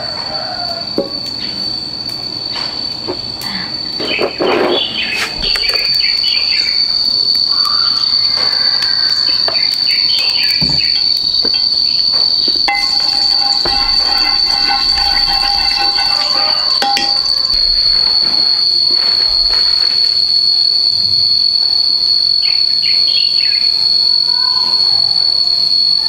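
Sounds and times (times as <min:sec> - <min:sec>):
insects droning: 0:00.0 - 0:26.0
knocks and clatter: 0:10.2 - 0:19.8
music: 0:12.8 - 0:18.2.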